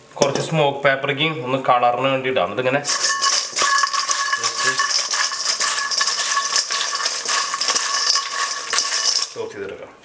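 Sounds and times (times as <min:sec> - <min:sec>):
metal bowl ringing: 0:02.9 - 0:09.4
chips rattling in metal bowl: 0:02.9 - 0:09.5.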